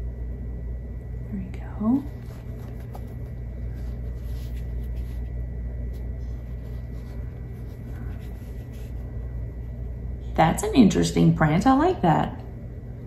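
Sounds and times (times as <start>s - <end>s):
low background hum: 0.0s - 13.0s
fabric rustling: 2.0s - 9.9s.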